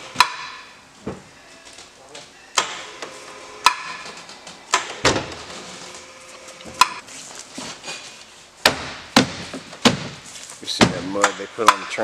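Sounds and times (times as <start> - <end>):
sharp knocks and clanks: 0.1 - 1.2, 3.6 - 5.4, 6.7 - 7.0, 8.6 - 12.0.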